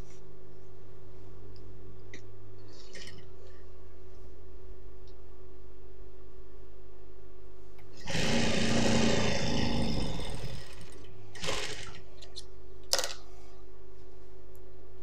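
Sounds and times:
low steady hum: 0.0s - 15.0s
sewing machine stitching: 8.0s - 12.0s.

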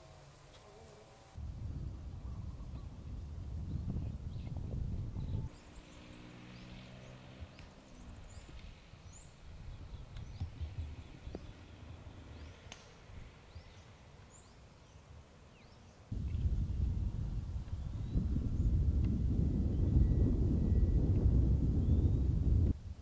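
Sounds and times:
small birds chirping: 0.0s - 22.7s
faint sharp clicks: 7.5s - 7.8s, 12.6s - 13.0s
low steady rumble: 16.1s - 23.0s.

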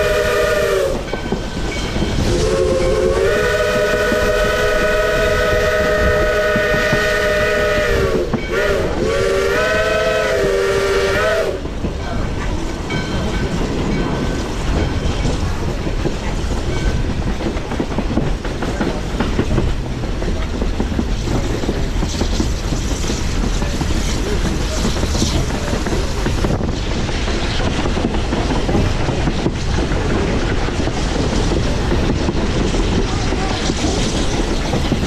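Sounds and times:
steam locomotive whistle: 0.0s - 1.3s, 2.2s - 11.7s
moving train rumble: 0.0s - 35.0s
wheels clattering over rails: 11.6s - 35.0s.

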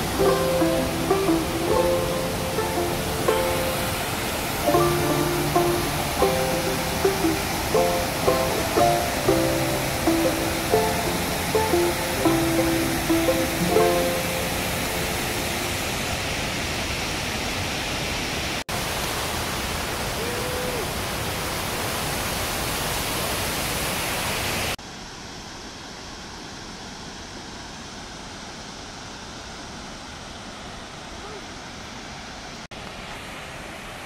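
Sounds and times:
river water rushing over rocks: 0.0s - 24.8s.

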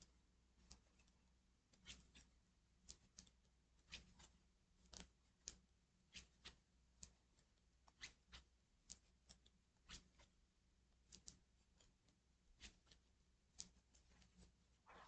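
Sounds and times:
quiet room hum: 0.0s - 15.0s
knitting needles clicking: 3.9s - 7.2s, 11.0s - 11.9s.

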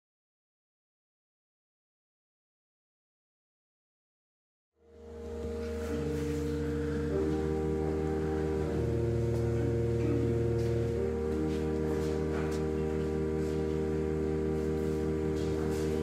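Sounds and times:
pipe organ sustained chords: 4.8s - 16.0s.

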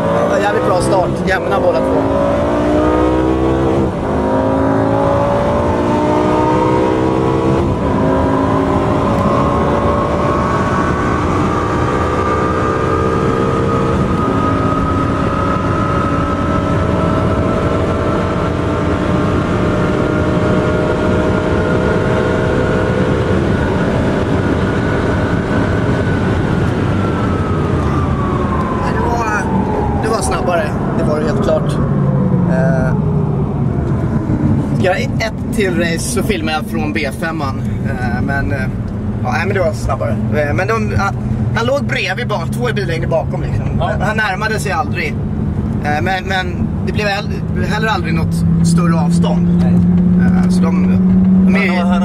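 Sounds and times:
car engine at full throttle: 0.0s - 52.0s.

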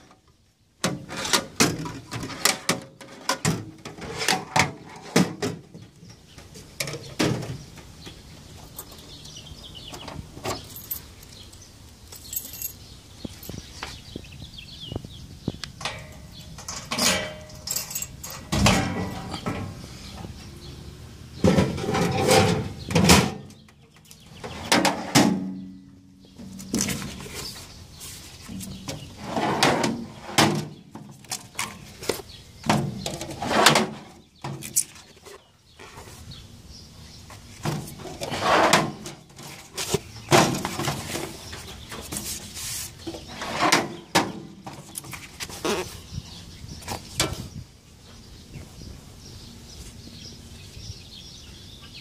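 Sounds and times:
metal drawers sliding open and shut: 0.8s - 5.7s, 15.8s - 20.3s, 21.4s - 23.6s, 24.4s - 25.7s, 28.6s - 31.8s, 32.6s - 34.9s, 37.6s - 39.6s, 43.1s - 45.0s.

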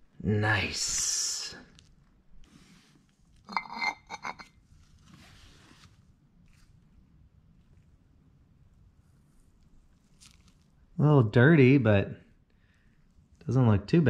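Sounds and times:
soft rustling: 1.7s - 3.5s, 4.5s - 8.1s, 9.0s - 10.9s.

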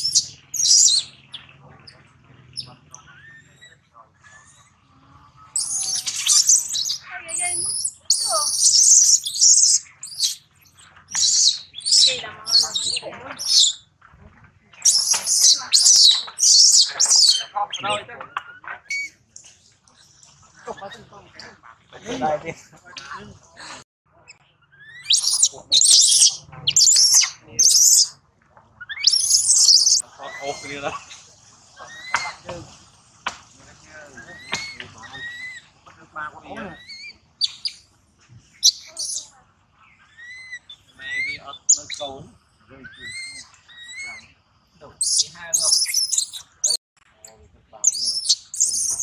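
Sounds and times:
baby monkey screaming: 0.0s - 1.4s, 5.5s - 10.5s, 11.1s - 13.8s, 14.8s - 19.2s, 24.7s - 28.1s, 28.8s - 30.8s, 31.8s - 32.4s, 34.2s - 35.7s, 36.5s - 37.8s, 38.6s - 39.3s, 40.1s - 42.0s, 42.8s - 44.3s, 45.0s - 46.8s, 47.8s - 49.0s.

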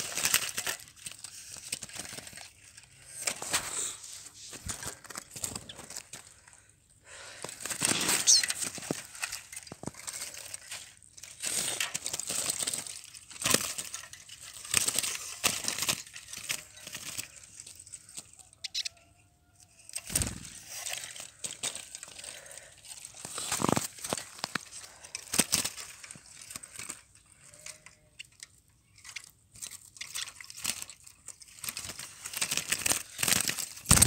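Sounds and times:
birds fluttering in a cage: 0.0s - 6.3s, 7.4s - 10.7s, 11.3s - 19.0s, 19.7s - 27.8s, 29.0s - 34.0s
high bird chirp: 7.9s - 8.5s.

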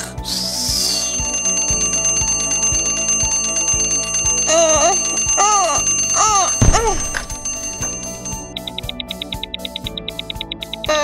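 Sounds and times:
alarm clock bell ringing: 0.8s - 8.8s.

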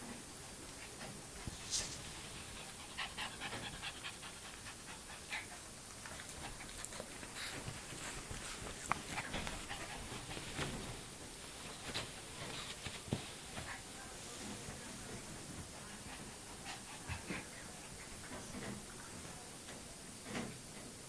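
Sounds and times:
dog panting: 0.7s - 13.2s, 15.1s - 19.4s.

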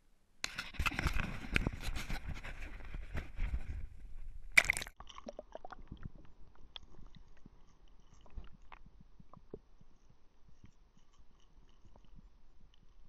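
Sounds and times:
faint underwater clicks: 4.5s - 13.0s
camera splashing into water: 4.6s - 5.0s.

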